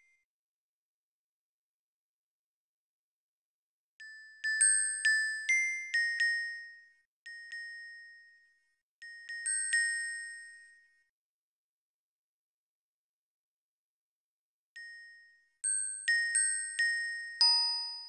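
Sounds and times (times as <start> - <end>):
glockenspiel melody: 4.0 - 11.1, 14.8 - 18.0.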